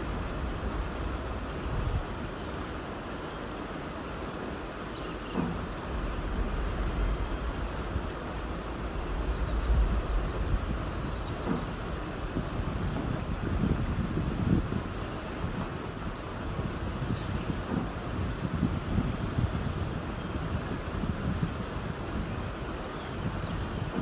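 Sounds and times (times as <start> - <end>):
train wheels rumbling on rails: 0.0 - 24.0
wheels clunking over track: 5.3 - 7.0, 10.7 - 19.8, 21.3 - 24.0.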